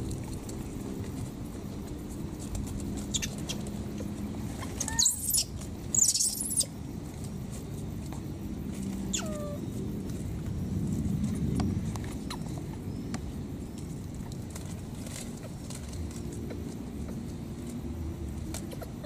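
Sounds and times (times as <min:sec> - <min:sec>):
steady low hum: 0:00.0 - 0:19.0
baby monkey squealing: 0:03.1 - 0:03.6, 0:04.7 - 0:06.7, 0:09.1 - 0:09.6.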